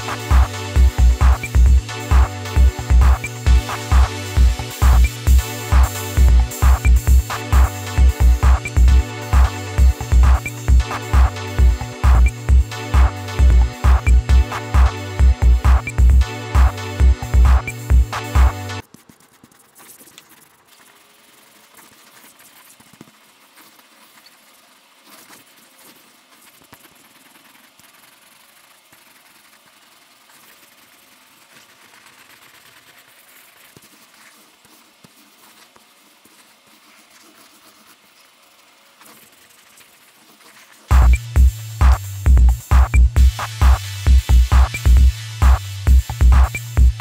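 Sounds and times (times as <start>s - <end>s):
marker scratching on paper: 0.0s - 15.0s, 15.6s - 43.8s
electronic music: 0.0s - 18.8s, 40.9s - 47.0s.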